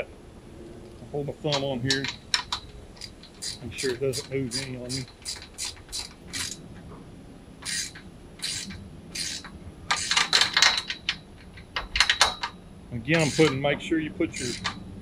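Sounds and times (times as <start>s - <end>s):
ratchet wrench clicking: 1.5s - 6.6s, 7.6s - 12.6s, 13.2s - 13.6s, 14.3s - 14.8s.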